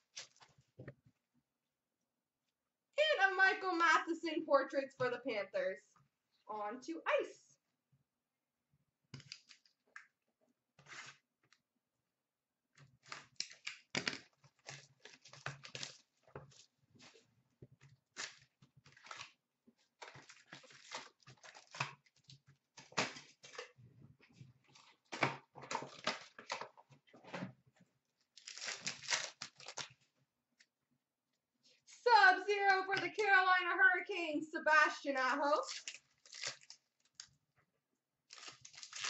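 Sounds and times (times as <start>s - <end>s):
crinkling card wrappers: 9.2s - 9.8s, 12.8s - 17.2s, 18.0s - 23.8s, 24.6s - 26.8s, 28.2s - 30.1s, 35.6s - 37.3s, 38.3s - 39.0s
rustling cards: 12.8s - 17.2s, 28.2s - 30.1s, 38.3s - 39.0s.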